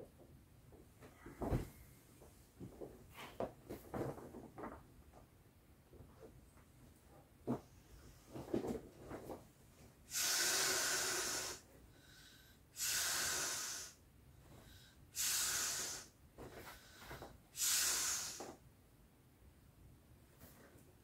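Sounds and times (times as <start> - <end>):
breath blown into valve: 10.1 - 14.0, 15.1 - 16.2, 17.5 - 18.6.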